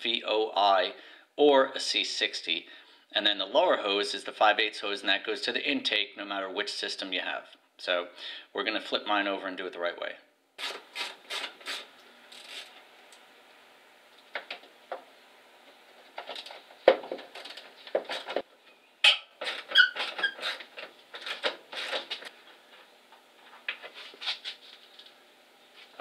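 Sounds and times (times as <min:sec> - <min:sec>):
short squeaks: 0:19.0 - 0:20.7.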